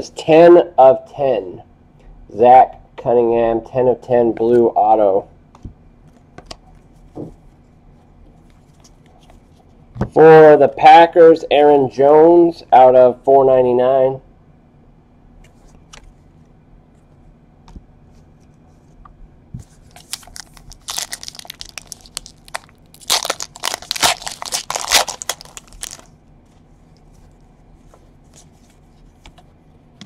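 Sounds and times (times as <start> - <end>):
foil wrapper crinkling and tearing: 19.9 - 26.1.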